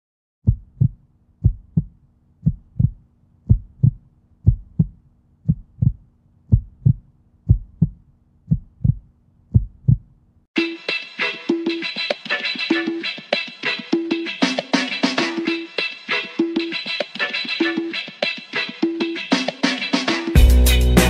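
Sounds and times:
heartbeat double thump: 0.4s - 10.1s.

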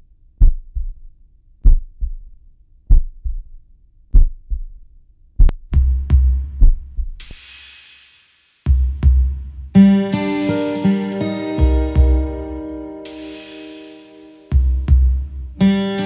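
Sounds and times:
heartbeat thumps: 0.4s - 7.2s, 8.7s - 9.8s, 11.6s - 12.6s, 14.5s - 15.6s
music drum beat with heavy bass: 5.4s - 15.8s
cymbal crash: 10.4s - 14.8s.

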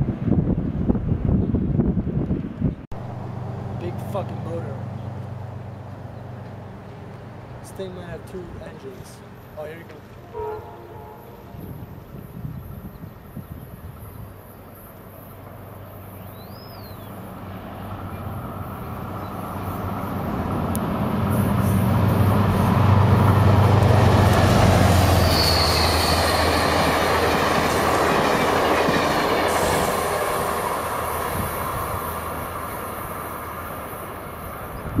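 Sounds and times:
diesel locomotive engines droning: 2.9s - 35.0s
train wheels rumbling on rails: 17.4s - 35.0s
high wheel squeal: 25.0s - 26.9s.

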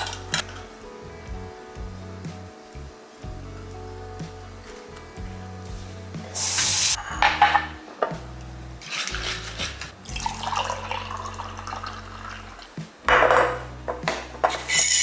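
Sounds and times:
background music low notes: 0.0s - 15.0s
dishes clinking: 7.0s - 8.2s, 13.1s - 15.0s
running water: 8.8s - 12.8s.

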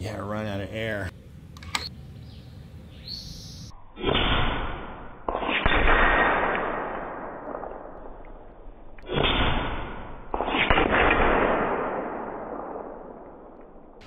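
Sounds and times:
air rifle shots: 4.0s - 8.2s, 9.0s - 14.0s.

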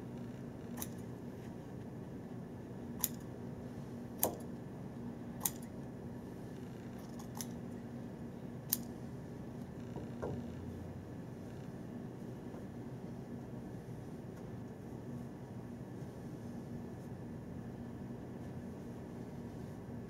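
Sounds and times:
scissors snipping cloth: 0.8s - 1.0s, 3.0s - 3.3s, 4.2s - 4.5s, 5.4s - 5.7s.

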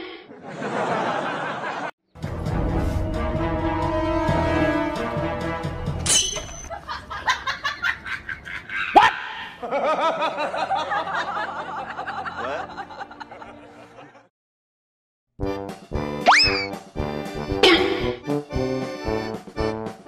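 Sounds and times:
sharp squeak: 6.1s - 6.7s.

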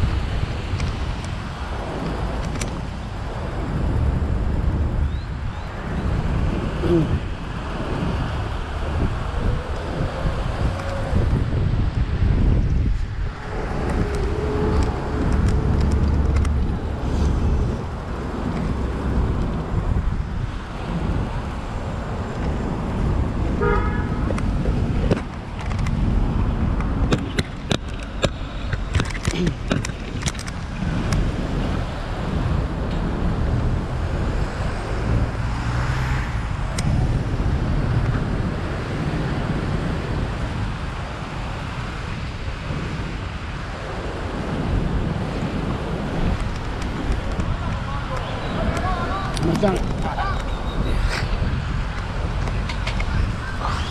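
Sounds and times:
street traffic: 0.0s - 53.9s
wind buffeting microphone: 0.0s - 53.9s
short horn toot: 23.6s - 24.2s
sharp clicks and rattles: 26.8s - 31.2s.

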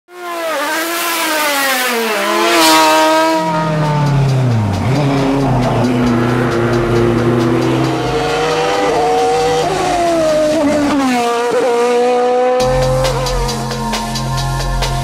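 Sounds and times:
racing car engines at high revs: 0.1s - 13.6s
deeper engine note: 3.4s - 10.4s, 12.6s - 15.0s.

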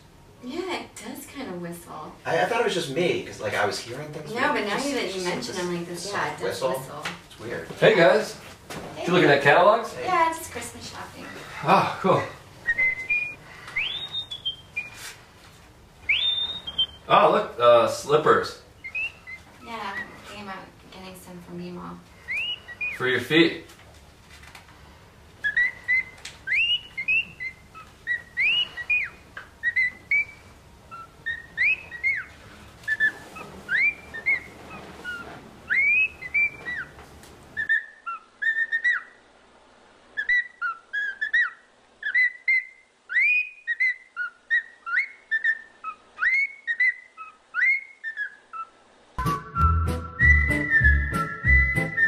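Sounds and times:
whistling nose: 12.6s - 15.2s, 16.1s - 17.0s, 22.3s - 23.0s, 32.9s - 36.9s, 49.2s - 52.0s.

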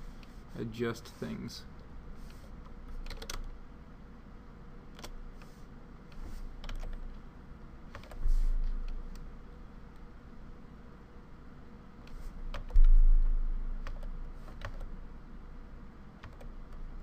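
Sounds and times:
keyboard and mouse clicks: 2.2s - 3.5s, 4.9s - 7.2s, 7.9s - 9.3s, 12.0s - 13.1s, 13.8s - 14.9s, 16.2s - 16.8s.

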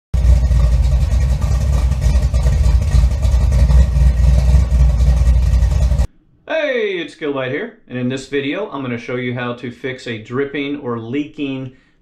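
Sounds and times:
low rumble with crackling: 0.1s - 6.2s.

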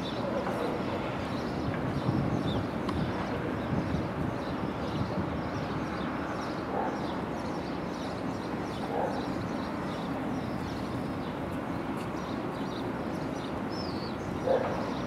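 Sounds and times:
distant dog barking: 6.7s - 7.1s, 8.9s - 9.3s, 14.4s - 15.0s.

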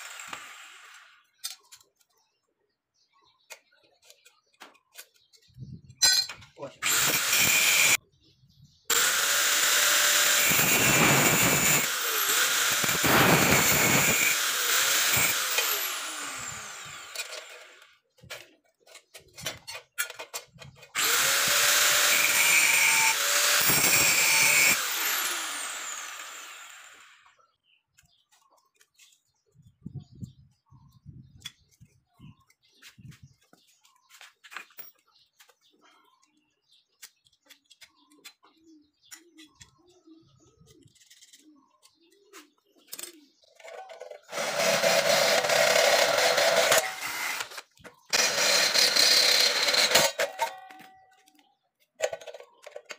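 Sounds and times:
angle grinder grinding metal: 0.0s - 1.2s, 6.8s - 8.0s, 8.9s - 18.0s, 20.9s - 27.3s, 43.6s - 51.0s
metal handling: 5.9s - 6.6s
motor winding down whine: 8.9s - 17.8s.

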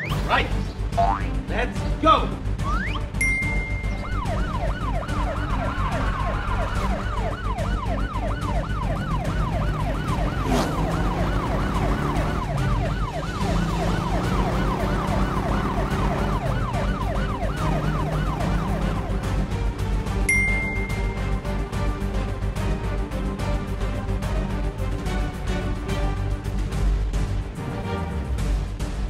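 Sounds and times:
police siren yelping: 2.6s - 19.5s.

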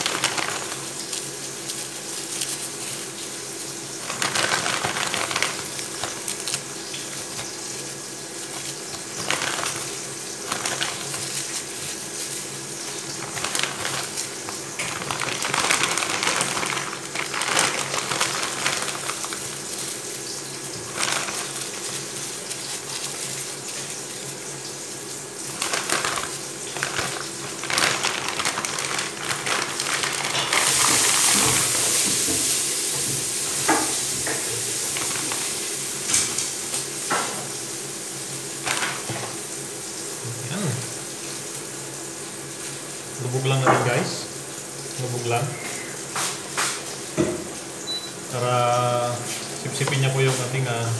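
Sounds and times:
dry leaves crackling: 0.0s - 37.1s, 38.4s - 39.1s
plastic bag crinkling: 0.0s - 37.6s, 38.6s - 39.4s, 48.6s - 50.7s.

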